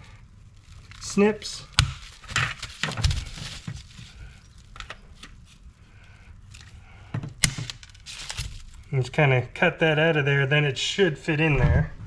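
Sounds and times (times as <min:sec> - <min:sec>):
nippers snipping plastic: 0:00.7 - 0:05.4, 0:07.3 - 0:08.9.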